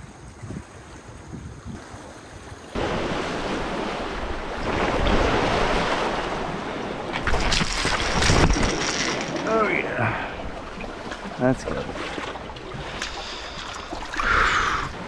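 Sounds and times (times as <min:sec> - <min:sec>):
wind buffeting microphone: 0:00.0 - 0:02.4
waves splashing among boulders: 0:01.8 - 0:15.0.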